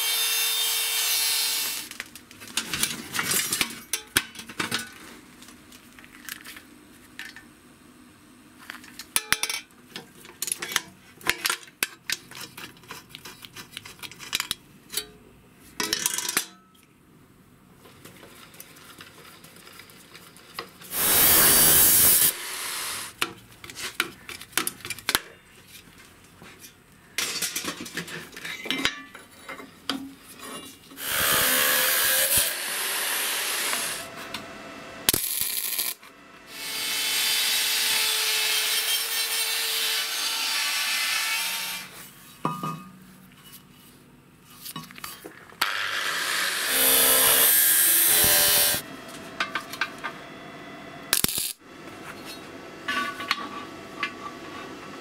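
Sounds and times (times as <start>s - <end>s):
steady hiss: 20.9s - 23.2s.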